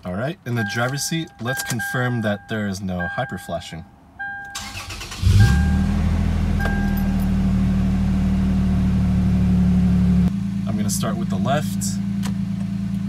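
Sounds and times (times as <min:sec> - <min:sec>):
car engine starting and idling: 0:00.0 - 0:13.0
dashboard chime dinging: 0:00.6 - 0:04.7, 0:05.4 - 0:06.0, 0:06.6 - 0:07.4.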